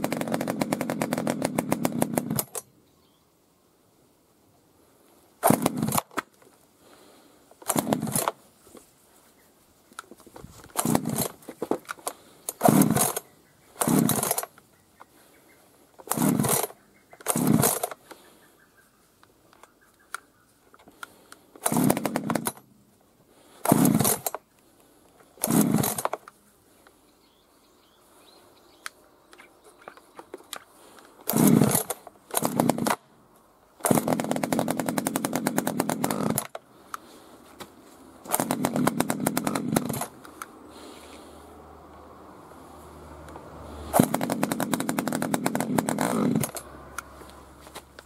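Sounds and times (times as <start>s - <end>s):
chainsaw engine sputtering: 0.0s - 2.7s, 5.4s - 8.4s, 10.5s - 14.6s, 16.0s - 18.2s, 20.9s - 22.7s, 23.5s - 24.4s, 25.3s - 26.4s, 30.8s - 33.1s, 33.8s - 37.3s, 38.2s - 41.3s, 43.8s - 48.0s.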